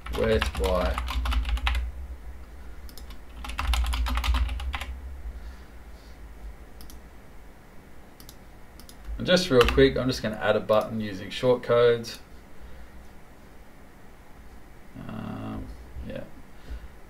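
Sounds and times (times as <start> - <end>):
computer keyboard typing: 0.0 - 1.8, 2.9 - 4.9, 8.2 - 9.9.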